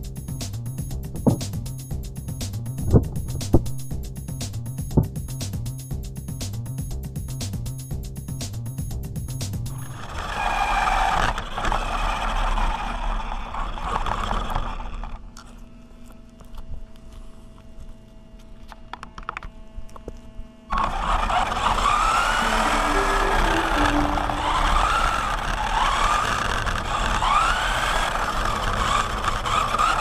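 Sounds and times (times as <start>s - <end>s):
electric motor and gears whining: 24.4s - 30.0s.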